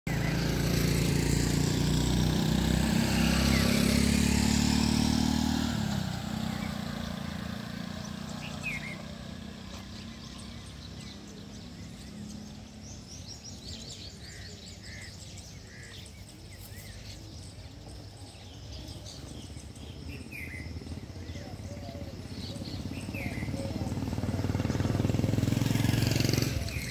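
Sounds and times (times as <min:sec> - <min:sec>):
engine running: 0:00.1 - 0:26.9
bird chirps: 0:06.2 - 0:26.9.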